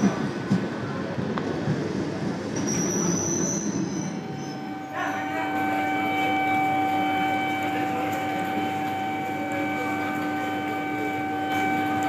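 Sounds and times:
electric train horn blast: 4.2 - 12.0.

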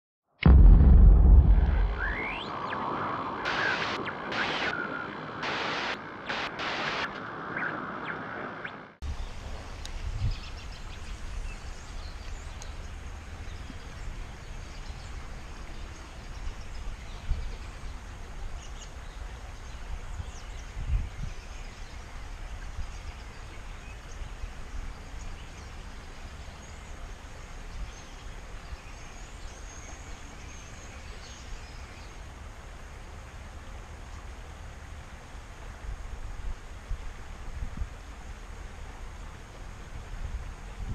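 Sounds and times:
low rumble: 0.4 - 3.5.

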